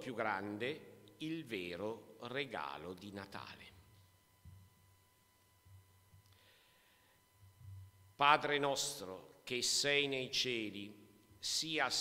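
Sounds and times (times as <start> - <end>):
faint breath: 6.3 - 7.4.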